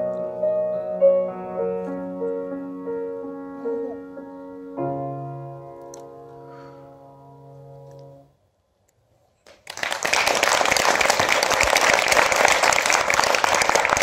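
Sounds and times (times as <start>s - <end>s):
grand piano chord: 0.0s - 8.3s
audience applause: 9.5s - 14.0s.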